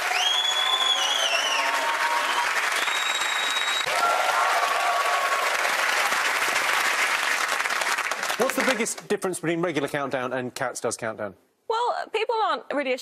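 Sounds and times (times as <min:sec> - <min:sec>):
whistles: 0:00.0 - 0:03.9
audience applauding: 0:00.0 - 0:09.2.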